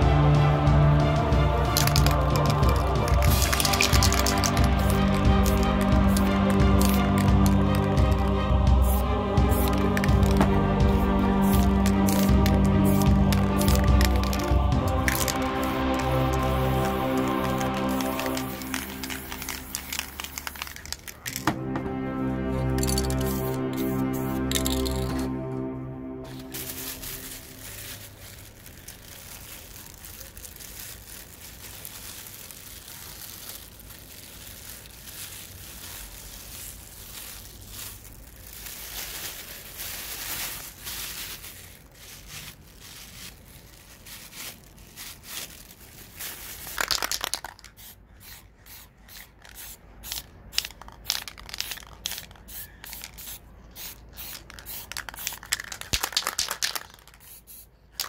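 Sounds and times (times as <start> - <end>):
plastic bag crinkling: 1.8 - 8.1, 11.4 - 21.6, 26.2 - 47.8, 54.3 - 58.0.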